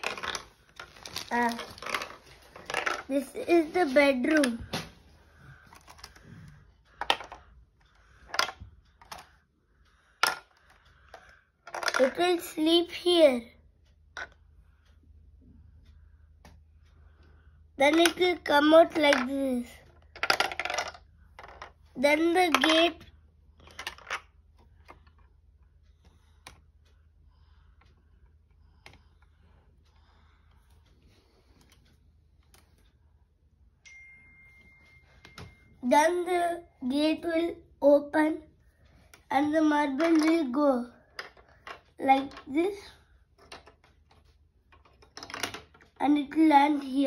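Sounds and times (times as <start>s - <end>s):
plastic bricks clicking: 0.0s - 3.1s, 11.6s - 12.2s, 20.0s - 21.8s, 22.5s - 22.9s, 23.6s - 24.3s, 43.4s - 45.9s.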